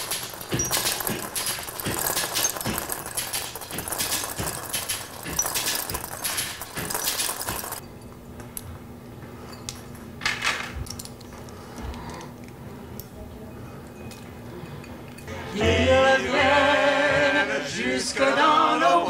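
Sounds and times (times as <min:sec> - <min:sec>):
glass chandelier pendants clinking: 0:00.0 - 0:08.6, 0:13.4 - 0:15.3.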